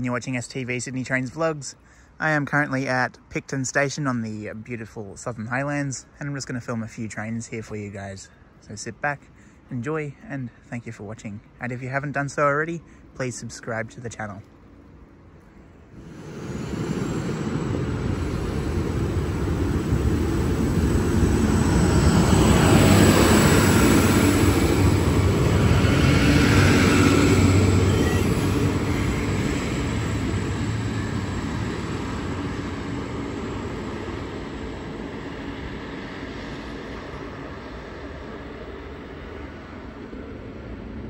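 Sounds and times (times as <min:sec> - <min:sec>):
diesel railcar passing: 0:14.6 - 0:41.0.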